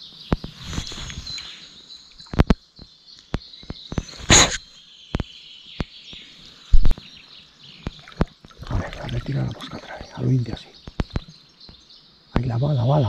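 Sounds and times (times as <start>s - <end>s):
birds chirping: 0.0s - 13.0s
outdoor background noise: 0.0s - 13.0s
short loud hiss: 4.1s - 4.7s
sharp clicks and knocks: 10.8s - 11.4s.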